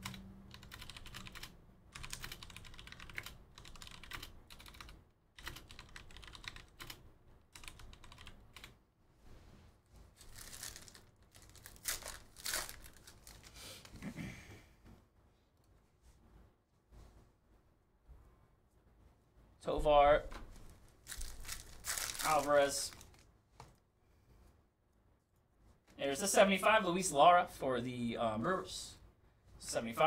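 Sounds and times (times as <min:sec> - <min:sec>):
faint keyboard typing: 0:00.0 - 0:08.8.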